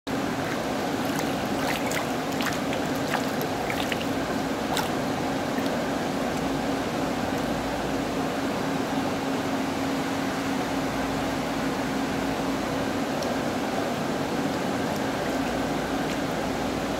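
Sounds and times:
aquarium water bubbling: 0.1s - 8.7s, 11.5s - 16.9s
steady low hum: 0.1s - 16.9s
splashy clicks: 0.4s - 5.8s.

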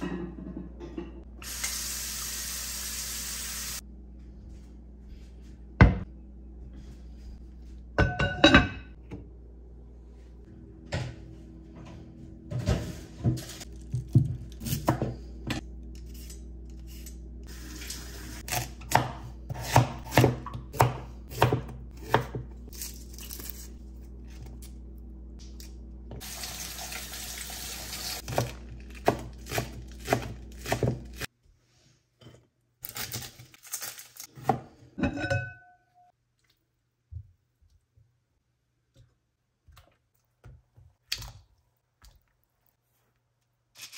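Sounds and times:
dishes and utensils knocking: 8.0s - 9.0s
knife chopping on cutting board: 18.5s - 22.5s, 29.1s - 31.2s.

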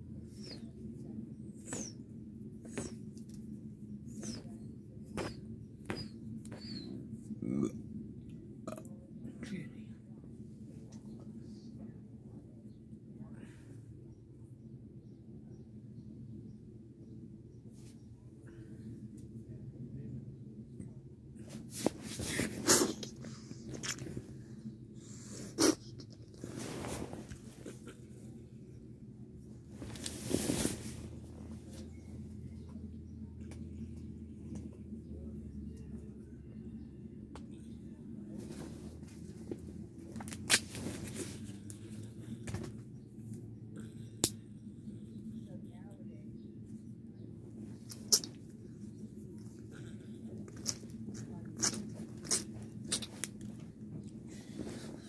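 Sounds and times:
low steady hum: 0.0s - 55.0s
fabric rustling against phone: 26.4s - 27.8s, 29.7s - 31.9s.

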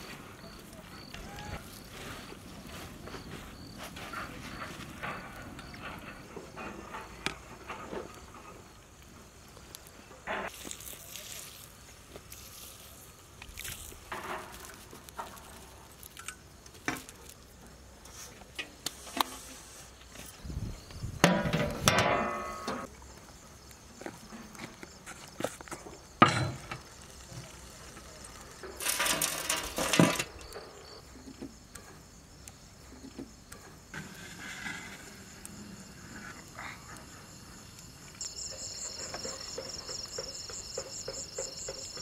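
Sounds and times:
crickets chirping: 0.0s - 42.0s
fried onions pattering on rice: 9.6s - 19.4s
charcoal clattering onto metal lid: 28.7s - 30.6s.

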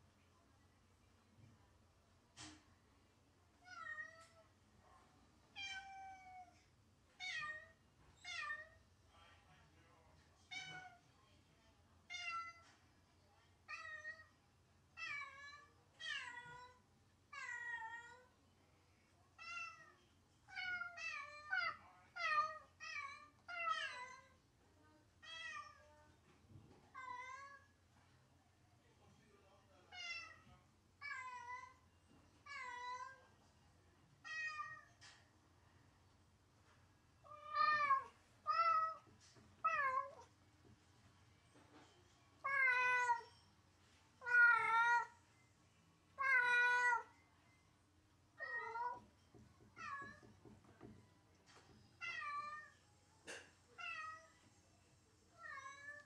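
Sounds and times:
cat meowing: 44.2s - 45.2s, 46.2s - 47.1s, 48.4s - 49.0s, 52.0s - 52.8s.

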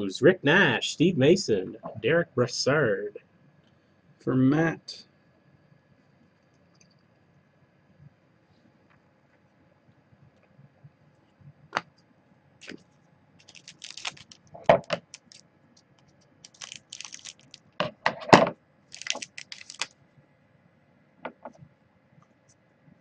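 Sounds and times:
wrapper crinkling: 13.4s - 15.4s, 16.0s - 17.8s, 18.9s - 19.9s
cards being flipped: 19.0s - 19.9s.

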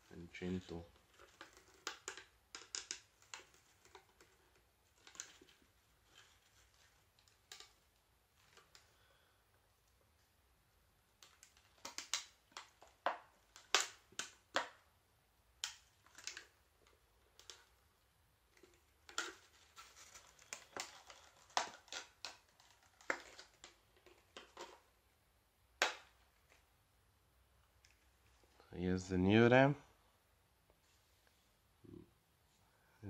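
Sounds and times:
hard plastic packaging crackling: 0.0s - 9.2s, 11.2s - 14.8s, 15.6s - 17.8s, 18.6s - 24.9s.

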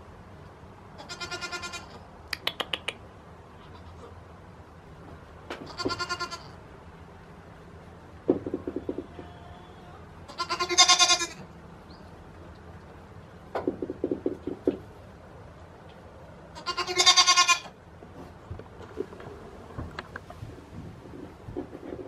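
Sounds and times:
goat bleating: 1.0s - 2.0s, 3.6s - 4.2s, 5.6s - 6.6s, 9.0s - 11.5s, 16.5s - 17.8s.

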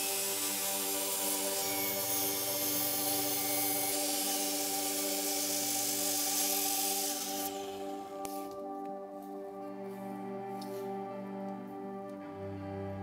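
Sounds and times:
power saw cutting wood: 0.0s - 8.4s
ambient background music: 0.0s - 13.0s.

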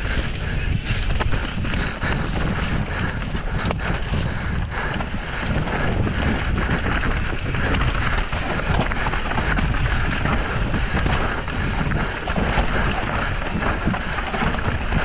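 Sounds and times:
bike knocks and rattles: 0.0s - 15.0s
wind buffeting microphone: 0.0s - 15.0s
tyres crunching over dirt and stones: 5.0s - 15.0s.

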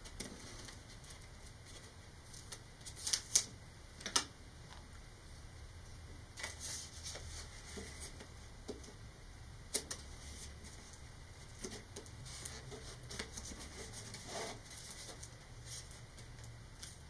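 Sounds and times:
tape peeling rasp: 11.6s - 15.9s.

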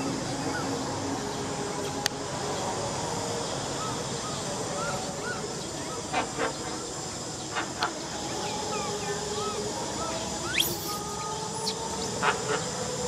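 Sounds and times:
steady outdoor hiss: 0.0s - 13.0s
quick arching chirps: 10.4s - 12.2s.

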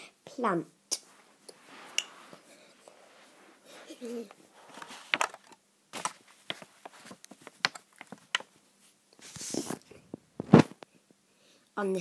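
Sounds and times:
brushing rustle: 1.1s - 5.2s.

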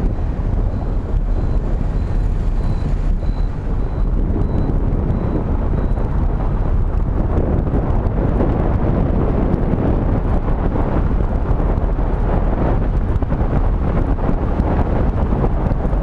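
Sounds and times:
road noise: 0.0s - 16.0s
wind buffeting microphone: 0.0s - 16.0s
faint high-pitched beep: 0.1s - 6.2s.

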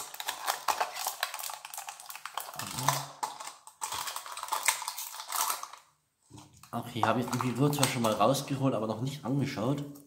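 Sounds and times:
plastic capsule clicking and rattling: 0.0s - 5.8s, 6.9s - 8.4s.

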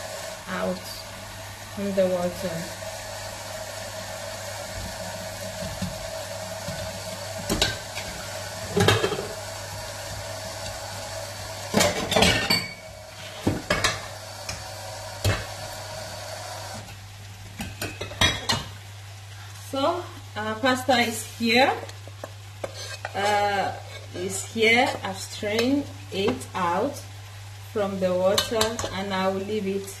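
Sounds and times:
pan sizzling: 0.0s - 30.0s
metal pots and utensils clanking: 6.7s - 9.4s, 11.7s - 14.0s, 17.6s - 18.7s.

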